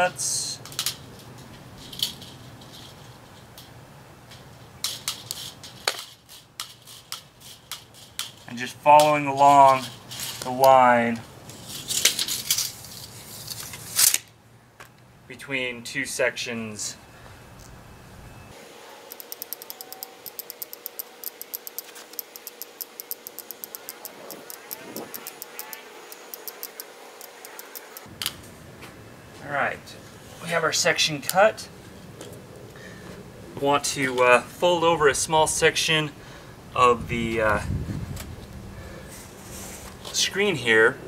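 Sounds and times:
tin snips cutting metal mesh: 19.1s - 28.1s.

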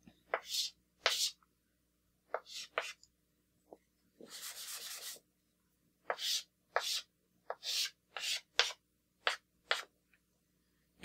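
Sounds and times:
chalk scraping on board: 0.3s - 1.4s, 2.3s - 3.0s, 4.2s - 5.2s, 6.1s - 9.9s
eraser rubbing on chalkboard: 0.3s - 1.4s, 2.3s - 3.0s, 4.2s - 5.2s, 6.1s - 9.9s.

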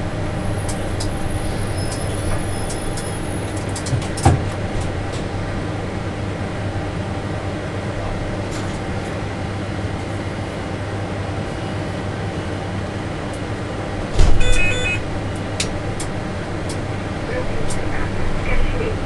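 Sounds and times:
tram motor hum and rolling: 0.0s - 19.0s
thump: 14.2s - 14.5s.

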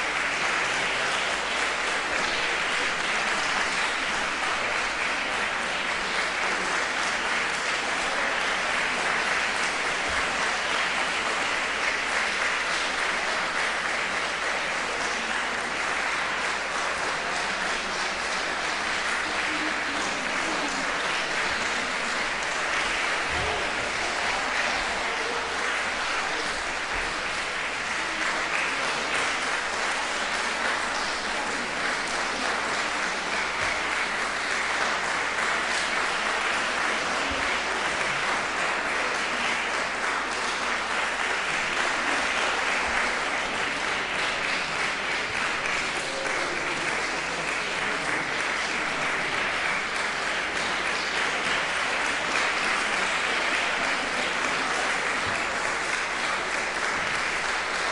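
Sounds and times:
audience applauding: 0.0s - 57.9s.

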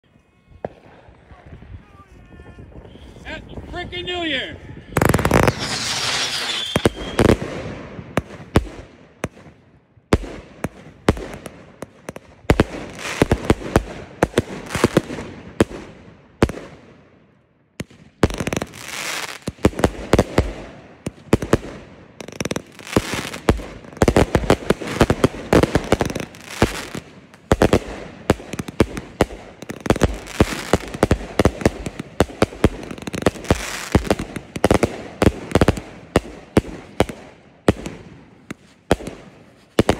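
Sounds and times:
fireworks banging: 5.0s - 9.6s, 17.8s - 39.9s.

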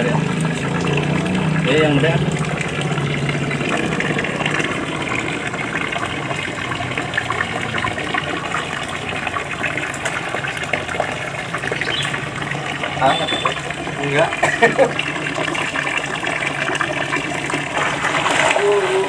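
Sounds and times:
water pouring from a pipe: 0.0s - 19.0s
small splashes from nets: 17.7s - 19.0s.

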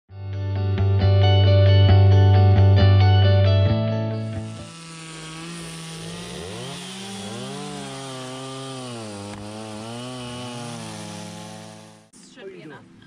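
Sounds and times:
chainsaw cutting logs: 4.1s - 12.1s.

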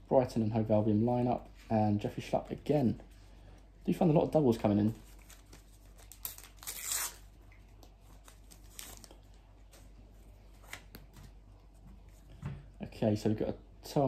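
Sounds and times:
cards rustling and clicking: 4.9s - 7.2s, 7.8s - 9.9s, 10.5s - 11.4s
wrapper ripping: 5.0s - 7.4s, 8.0s - 9.8s.

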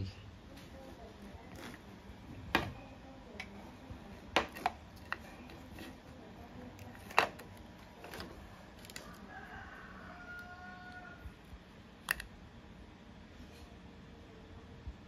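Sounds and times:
rooster crowing faintly: 8.1s - 11.5s.

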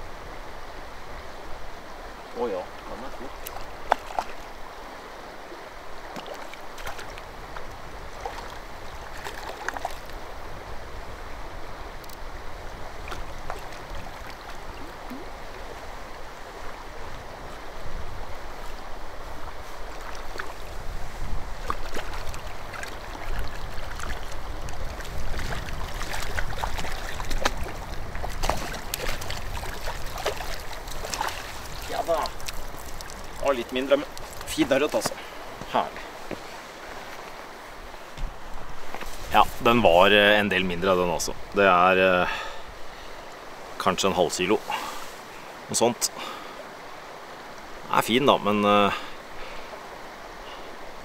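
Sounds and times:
water splashing and sloshing: 1.5s - 41.6s, 42.3s - 48.1s
wind noise on microphone: 10.1s - 33.4s.

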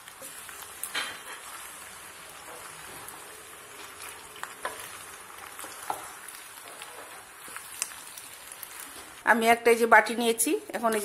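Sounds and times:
pasta and meat sizzling in pan: 0.0s - 11.0s.

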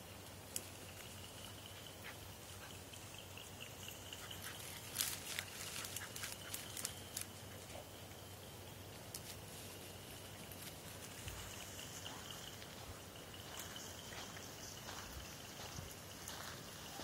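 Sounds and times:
dry grass crackling and rustling: 3.8s - 8.0s, 8.8s - 14.2s.

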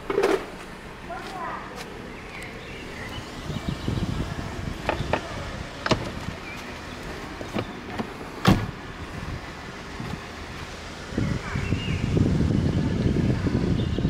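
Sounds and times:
car door shutting: 4.8s - 8.8s.

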